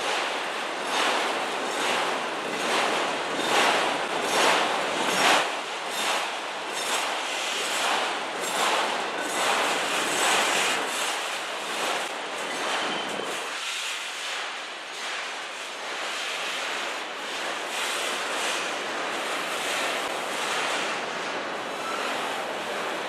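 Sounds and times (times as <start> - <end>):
train wheels clattering on rails: 0.0 - 13.6.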